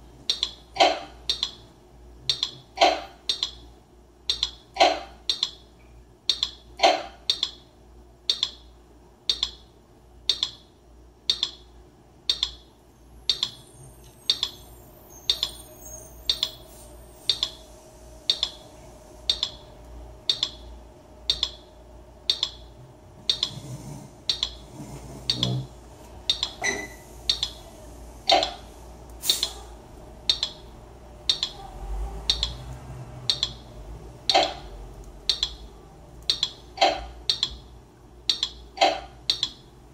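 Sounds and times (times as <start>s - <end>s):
held synth tone: 12.9s - 22.8s, 26.6s - 28.7s
drum machine looped beat: 19.3s - 23.6s, 25.3s - 27.7s.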